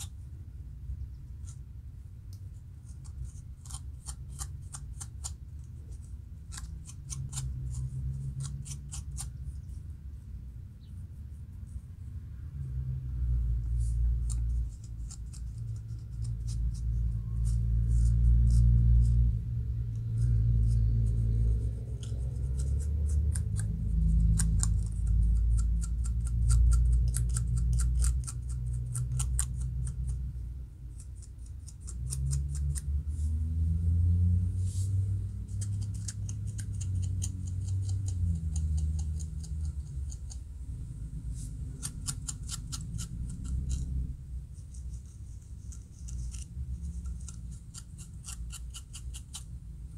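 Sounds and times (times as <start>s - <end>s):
low background rumble: 0.0s - 49.9s
comb scratching scalp: 2.8s - 9.6s, 13.7s - 19.3s, 19.9s - 30.2s, 34.6s - 40.4s, 41.2s - 49.6s.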